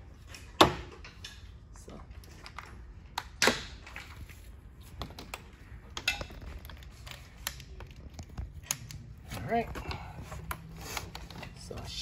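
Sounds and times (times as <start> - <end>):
hose fittings clicking and knocking: 4.9 - 9.1.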